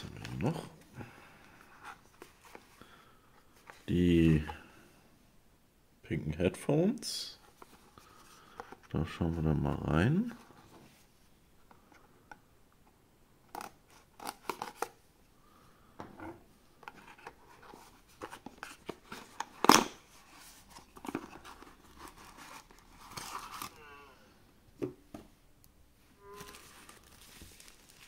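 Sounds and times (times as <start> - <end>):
cardboard box being opened: 26.4 - 28.0.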